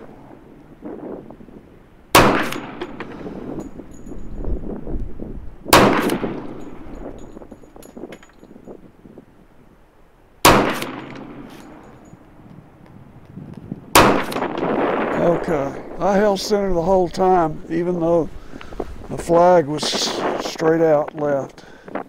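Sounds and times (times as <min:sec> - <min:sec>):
pistol shots with echo: 0:02.1 - 0:03.2, 0:05.7 - 0:06.9, 0:10.4 - 0:12.0, 0:13.9 - 0:15.2.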